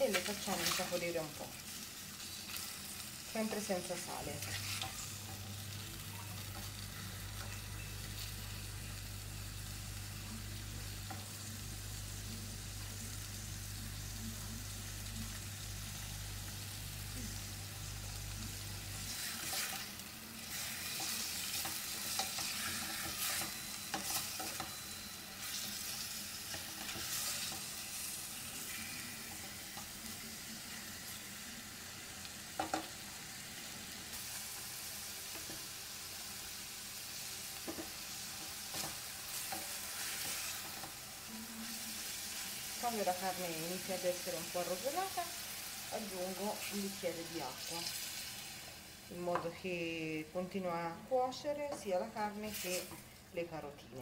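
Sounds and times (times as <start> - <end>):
meat sizzling in oil: 0.0 - 50.2, 51.1 - 53.4
wooden spoon scraping: 4.3 - 5.4, 19.1 - 19.9, 20.5 - 29.9, 38.7 - 41.0.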